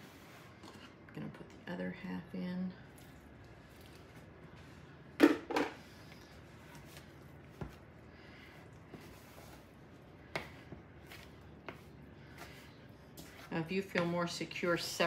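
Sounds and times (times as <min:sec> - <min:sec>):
fork stirring dough in bowl: 0:08.9 - 0:15.0.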